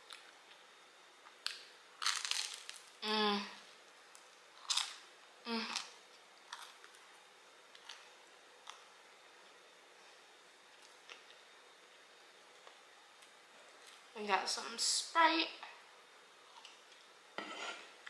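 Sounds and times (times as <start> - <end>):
crust crunching: 1.4 - 3.0.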